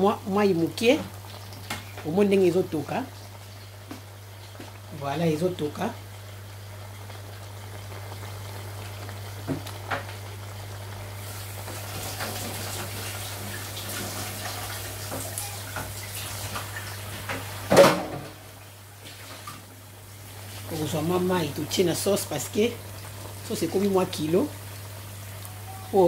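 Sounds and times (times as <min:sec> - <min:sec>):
sauce simmering and bubbling: 0:05.6 - 0:17.7.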